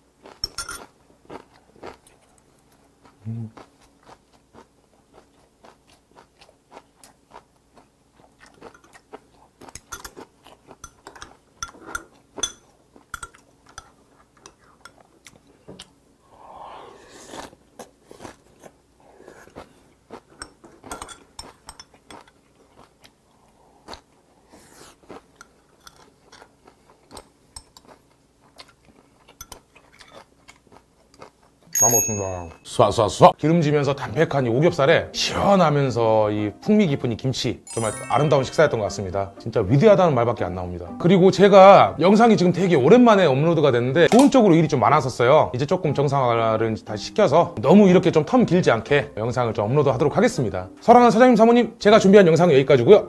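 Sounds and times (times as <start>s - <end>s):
person chewing food: 0.2s - 16.0s, 17.0s - 31.7s.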